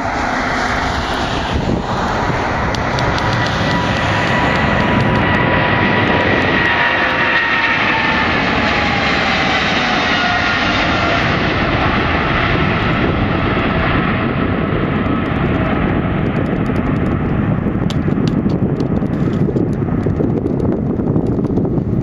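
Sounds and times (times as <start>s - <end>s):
high fan whine: 0.0s - 13.8s
deep jet rumble with crackle: 0.0s - 22.0s
jet engines at takeoff: 0.0s - 22.0s.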